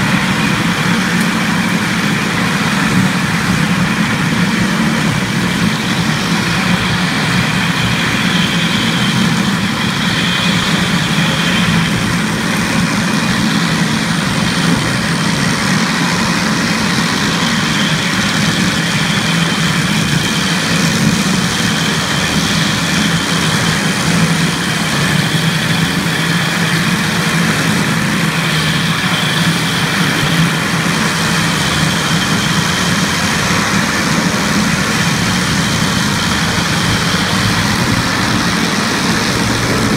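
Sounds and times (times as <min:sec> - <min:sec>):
floor grinder running: 0:00.0 - 0:39.9.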